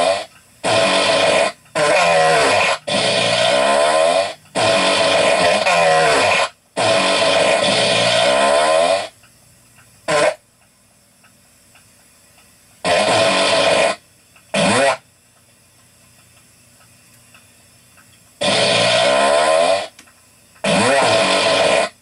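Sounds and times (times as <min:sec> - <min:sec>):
fart sounds: 0:00.0 - 0:09.2, 0:10.1 - 0:10.4, 0:12.8 - 0:15.0, 0:18.4 - 0:20.0, 0:20.6 - 0:22.0.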